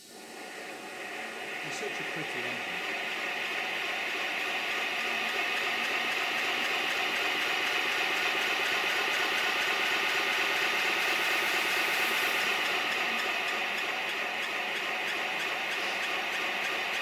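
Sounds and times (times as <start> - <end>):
steam locomotive hissing: 0.0 - 17.0.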